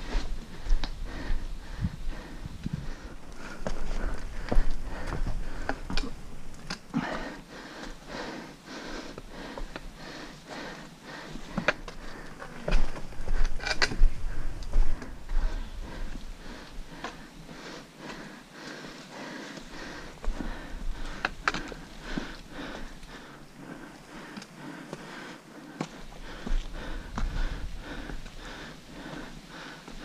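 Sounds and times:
person breathing: 0:00.0 - 0:06.2, 0:06.9 - 0:30.0
footsteps on rock and dirt: 0:00.0 - 0:08.2, 0:09.1 - 0:30.0
trekking pole tips clicking on stone: 0:11.5 - 0:14.8, 0:21.0 - 0:22.2.

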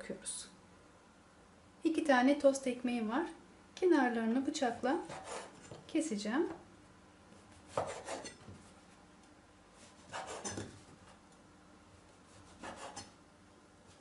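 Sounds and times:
knife sawing bread on wooden board: 0:05.0 - 0:05.6, 0:07.7 - 0:08.3, 0:09.9 - 0:10.6, 0:12.3 - 0:13.1.

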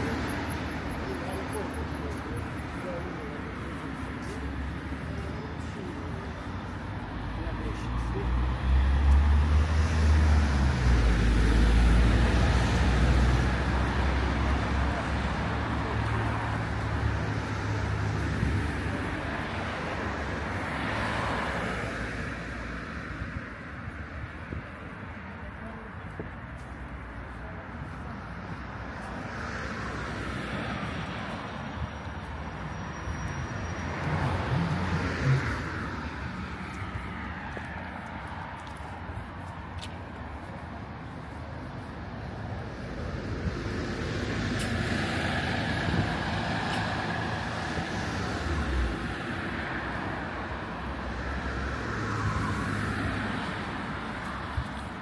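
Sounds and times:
vehicle passing by: 0:33.2 - 0:38.9.

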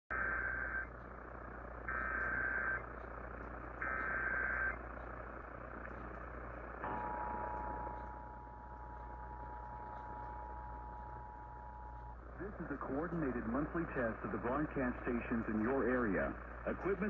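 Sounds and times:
digital data bursts from radio: 0:00.1 - 0:01.0, 0:01.8 - 0:02.9, 0:03.8 - 0:04.8, 0:12.3 - 0:17.0
radio static hiss: 0:00.1 - 0:06.8, 0:11.0 - 0:17.0.

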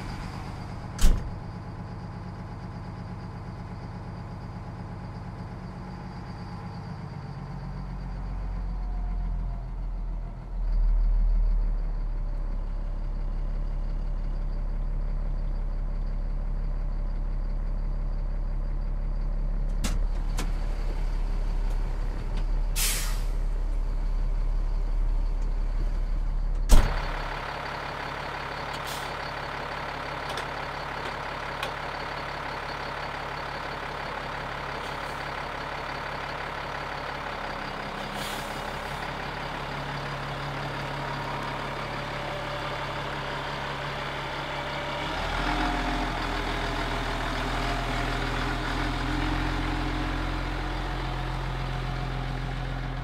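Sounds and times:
diesel truck engine idling: 0:00.0 - 0:53.0
air release hiss: 0:22.8 - 0:23.3.

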